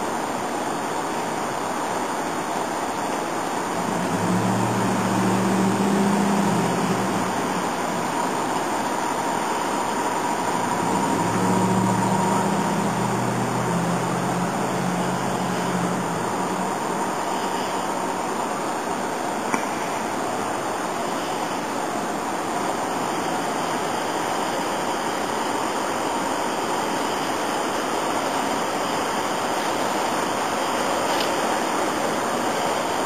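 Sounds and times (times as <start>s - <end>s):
steady rushing noise: 0.0s - 33.0s.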